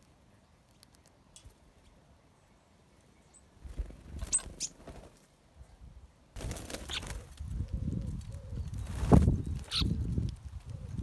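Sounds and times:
birds wings fluttering: 3.6s - 5.3s, 6.4s - 11.0s.

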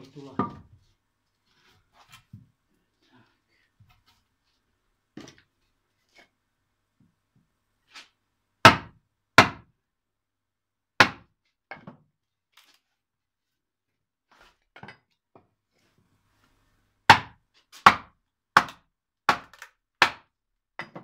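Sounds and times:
axe knocking into wood: 8.7s - 9.6s, 11.0s - 11.3s, 17.1s - 21.0s.

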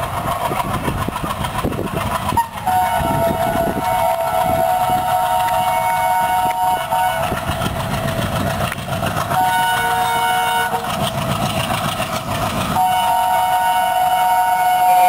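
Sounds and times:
diesel locomotive engine chugging: 0.0s - 15.0s
train rumble: 0.0s - 15.0s
multi-tone train horn: 2.3s - 8.2s, 9.3s - 11.2s, 12.7s - 15.0s.

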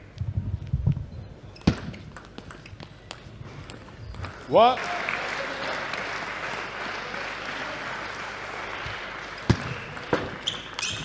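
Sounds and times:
spectators applauding: 4.8s - 10.9s.

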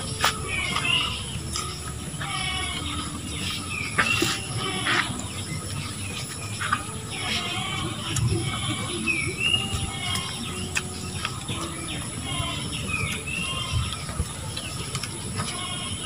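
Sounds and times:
birds chirping: 0.0s - 16.0s
chewing and tearing food: 0.0s - 16.0s
gliding whistled bird notes: 8.9s - 14.8s.

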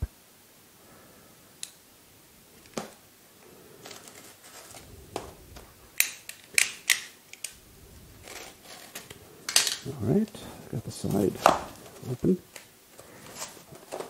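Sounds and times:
scraping: 3.7s - 14.0s.

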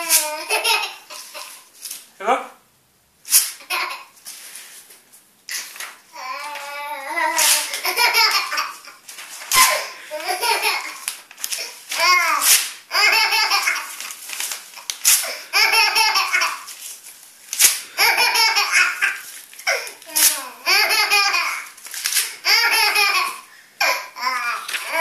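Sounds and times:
baby laughing: 0.0s - 1.7s, 3.6s - 4.2s, 6.2s - 14.2s, 14.8s - 16.7s, 17.9s - 21.8s, 22.4s - 25.0s
paper tearing: 7.2s - 7.9s, 9.1s - 12.8s, 13.7s - 15.3s, 16.7s - 17.9s, 19.1s - 20.5s, 21.6s - 22.4s.

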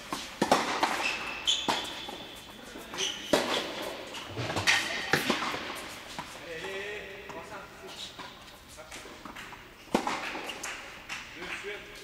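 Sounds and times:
racket striking tennis ball: 0.0s - 2.4s, 3.0s - 6.4s, 9.2s - 11.3s
sneakers squeaking: 0.0s - 11.8s
tennis ball bouncing: 0.1s - 2.3s, 3.3s - 7.4s, 9.2s - 11.2s.

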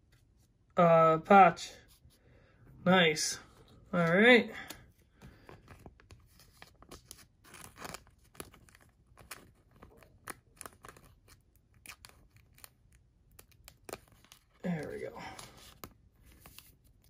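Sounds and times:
plastic card sleeve crackling: 3.6s - 17.0s.

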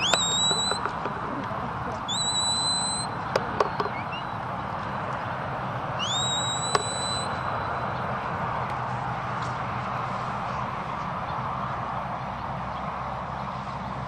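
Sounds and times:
shepherd's rising whistle: 0.0s - 1.0s, 2.0s - 4.4s, 6.0s - 7.9s
sharp clicks: 0.0s - 4.0s, 6.1s - 7.1s.

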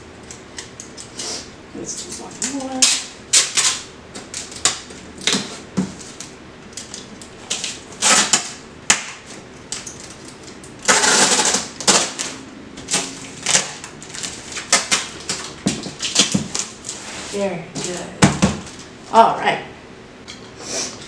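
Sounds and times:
packing tape rasping off roll: 2.8s - 17.4s
tape dispenser knocking on box: 7.5s - 9.3s, 10.8s - 16.7s, 17.8s - 18.8s.

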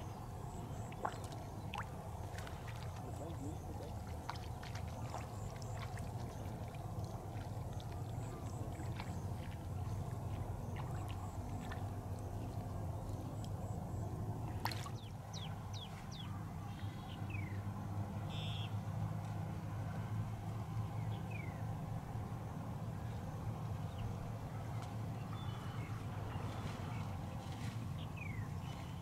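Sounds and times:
shallow water sloshing: 0.0s - 17.0s
steady low rumble: 0.0s - 18.3s.

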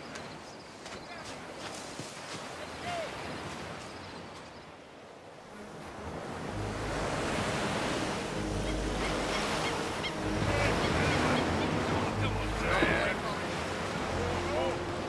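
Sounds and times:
ocean surf breaking on beach: 5.2s - 15.0s.

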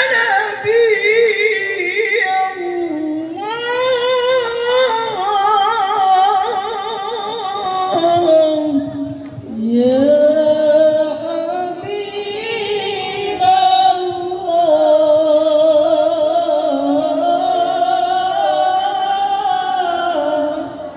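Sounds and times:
women singing devotional song: 0.0s - 20.9s.

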